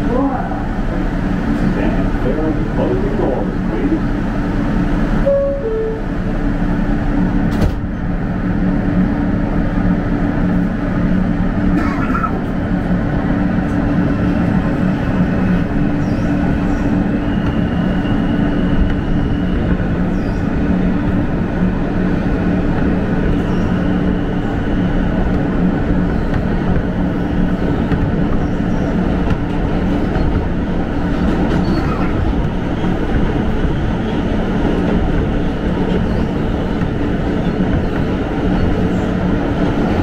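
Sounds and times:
train running rumble: 0.0s - 40.0s
two-note door chime: 5.3s - 6.1s.

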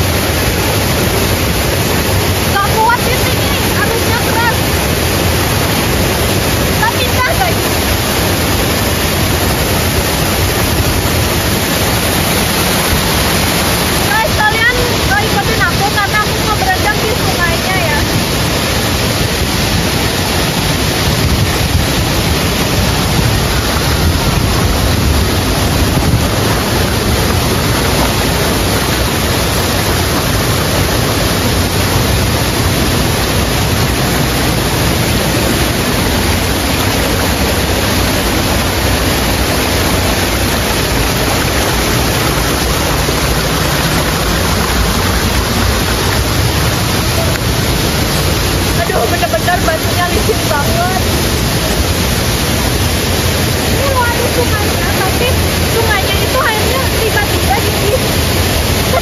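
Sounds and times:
waterfall rushing: 0.0s - 59.0s.

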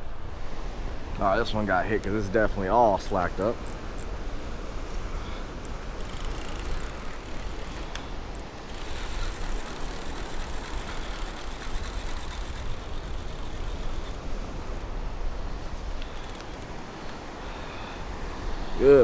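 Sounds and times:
wind: 0.0s - 19.0s
fishing reel whirring: 3.4s - 4.1s, 4.9s - 17.2s.

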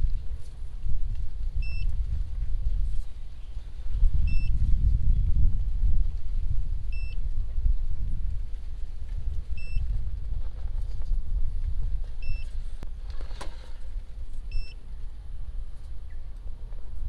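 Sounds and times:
steady low rumble: 0.0s - 17.0s
short electronic beep: 4.3s - 4.5s, 6.9s - 7.2s, 12.2s - 12.5s, 14.5s - 14.8s.

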